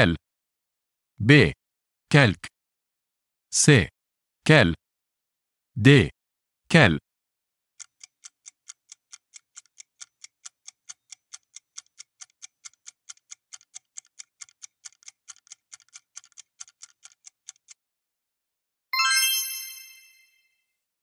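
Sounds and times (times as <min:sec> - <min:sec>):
clock-like timer ticking: 0:07.8 - 0:17.8.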